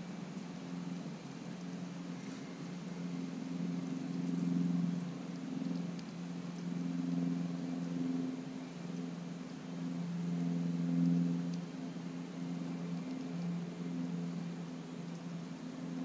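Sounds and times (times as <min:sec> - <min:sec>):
motor drone: 0:00.0 - 0:16.0
faint ticks: 0:03.8 - 0:04.7.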